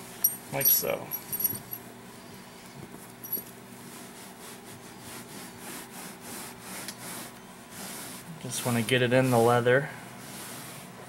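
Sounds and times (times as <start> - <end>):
small metallic clinks: 0.2 - 1.9, 3.2 - 3.5
rag rubbing leather: 3.3 - 11.0.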